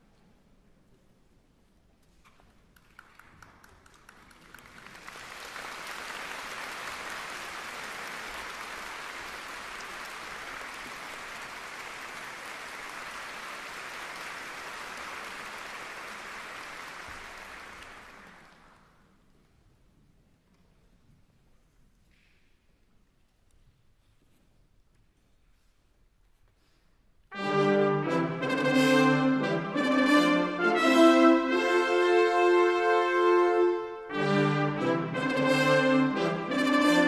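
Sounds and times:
audience applauding: 2.8s - 19.0s.

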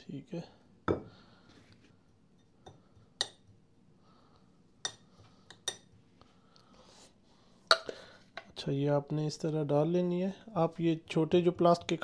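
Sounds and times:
metal spoon clinking on glass: 5.6s - 5.9s.

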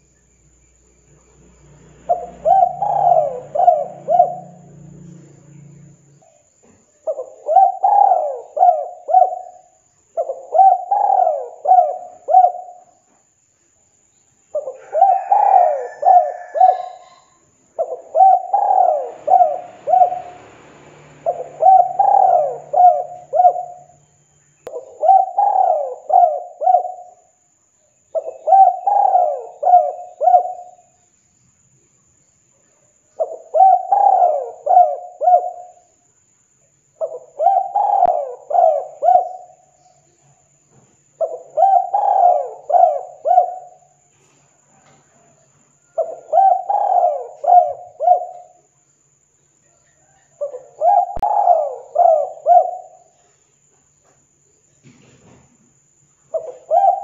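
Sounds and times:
dove cooing: 2.0s - 12.9s, 14.5s - 24.0s, 24.7s - 27.3s, 28.1s - 30.9s, 33.2s - 35.8s, 37.0s - 39.8s, 41.2s - 44.1s, 44.8s - 48.6s, 49.9s - 53.3s, 56.3s - 57.0s.

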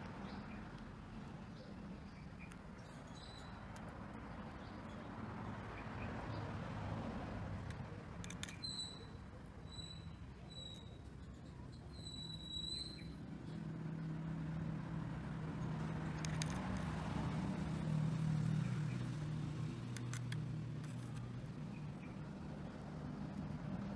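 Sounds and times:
faint clicks: 16.1s - 16.9s, 19.8s - 21.3s.

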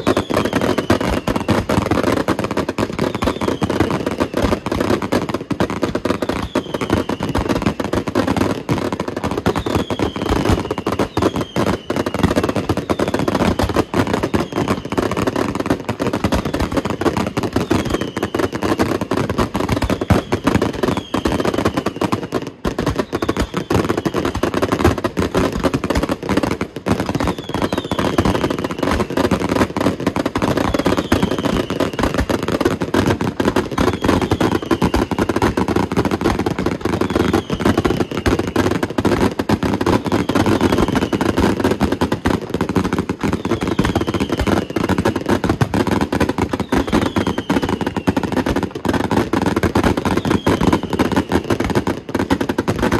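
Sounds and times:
fireworks bangs and crackles: 0.0s - 52.9s
fireworks falling whistles: 0.0s - 52.9s.

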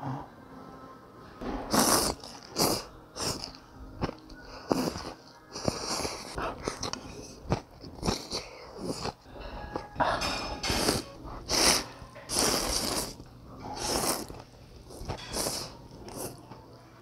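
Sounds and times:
person slurping noodles: 1.7s - 3.6s, 4.5s - 9.2s, 10.6s - 16.4s.

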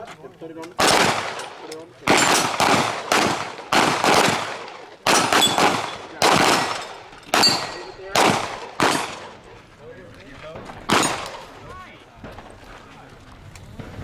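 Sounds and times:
pistol shots with echo: 0.7s - 9.4s, 10.6s - 11.6s.

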